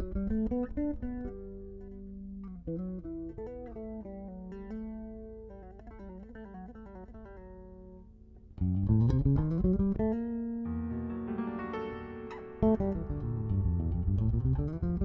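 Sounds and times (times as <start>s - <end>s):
electric bass guitar solo: 0.0s - 15.0s
band playing with piano: 10.8s - 14.1s.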